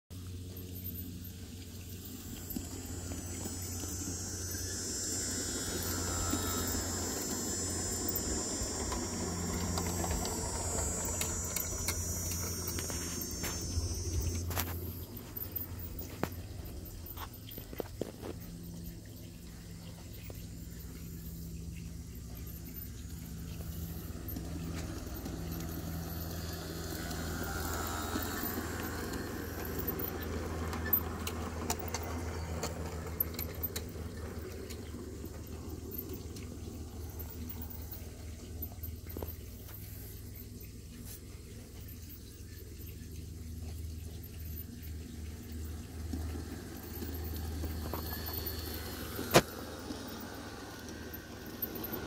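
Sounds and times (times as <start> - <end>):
model train wheels rumbling on rails: 0.2 - 18.1, 18.7 - 52.0
sharp clicks of train cars: 45.8 - 52.0.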